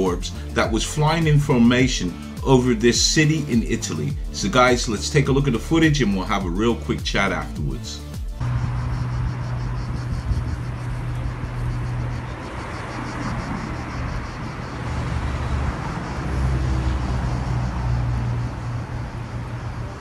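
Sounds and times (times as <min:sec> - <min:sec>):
constant low rumble: 0:08.4 - 0:16.2.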